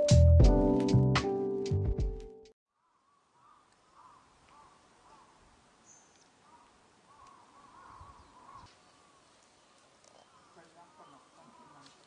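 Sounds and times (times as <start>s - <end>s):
faint bird calls: 2.8s - 12.0s.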